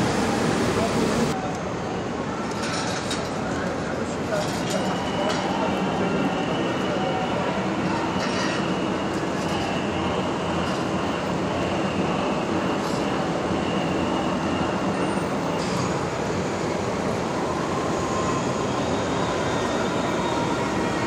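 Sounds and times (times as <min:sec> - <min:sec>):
subway train rumble: 0:00.0 - 0:21.0
faint high wheel squeal: 0:04.6 - 0:16.0, 0:17.4 - 0:21.0.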